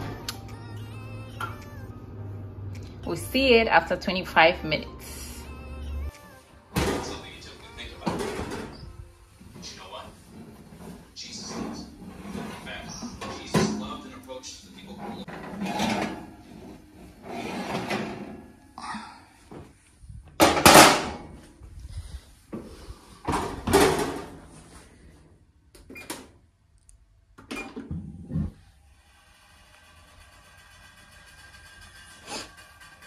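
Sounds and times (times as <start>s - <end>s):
oven rack and door handled: 8.0s - 8.8s, 15.0s - 16.6s.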